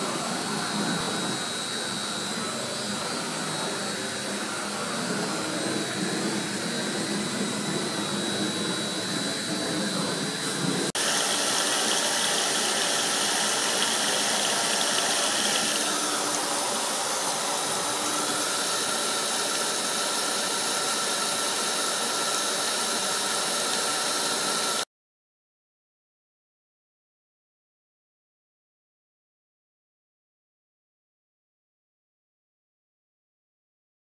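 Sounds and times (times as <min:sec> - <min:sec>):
faint high whine: 0:00.0 - 0:20.1
stone milling machine grinding: 0:00.0 - 0:24.8.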